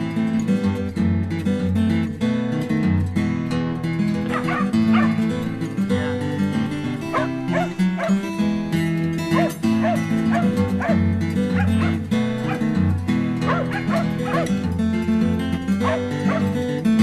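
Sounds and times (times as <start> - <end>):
instrumental music: 0.0 - 17.0
dog barking: 4.2 - 5.5, 7.1 - 8.3, 9.3 - 12.8, 13.4 - 14.6, 15.8 - 16.6.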